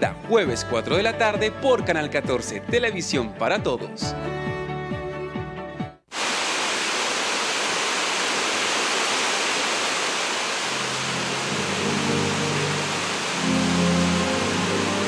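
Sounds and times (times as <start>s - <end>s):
music: 0.0s - 6.0s, 11.4s - 15.0s
steady rushing hiss: 6.1s - 15.0s
low music notes: 11.5s - 15.0s.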